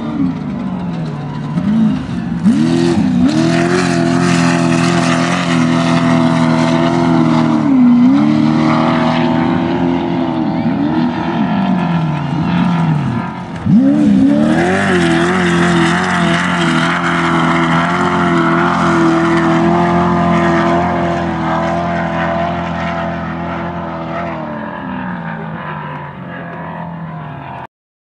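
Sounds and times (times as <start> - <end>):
buggy engine revving: 0.0 - 27.7.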